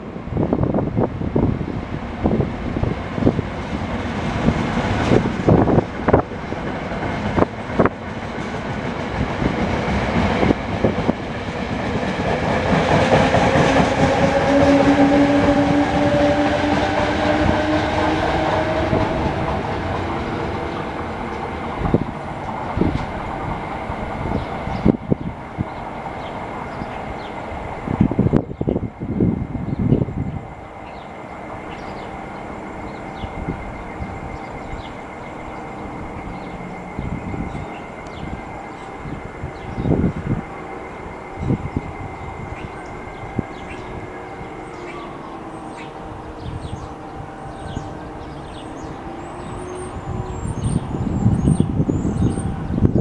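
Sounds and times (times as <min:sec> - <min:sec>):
locomotive two-note hum: 0:13.5 - 0:22.0.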